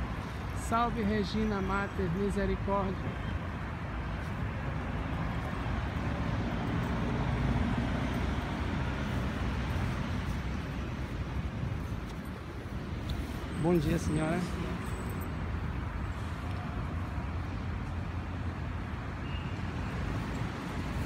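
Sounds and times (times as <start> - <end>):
street traffic rumble: 0.0 - 21.0
vehicle passing: 4.2 - 19.1.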